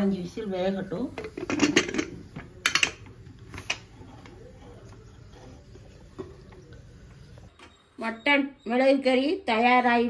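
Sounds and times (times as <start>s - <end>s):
metal lid clicks and knocks: 1.2s - 3.9s.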